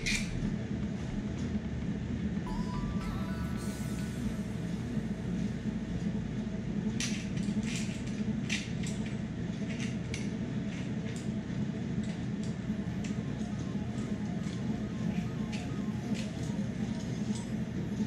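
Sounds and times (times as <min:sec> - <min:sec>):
steady low hum: 0:00.0 - 0:18.0
fishing rod and reel clicks and rattles: 0:07.0 - 0:11.3.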